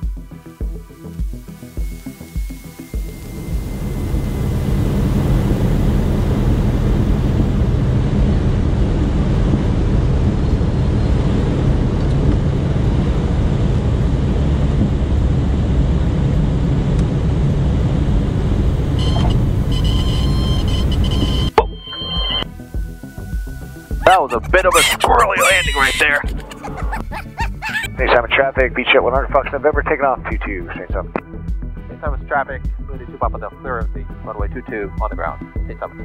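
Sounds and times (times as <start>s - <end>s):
airplane engine and propeller drone: 0.0s - 21.6s
rushing wind: 3.2s - 19.6s.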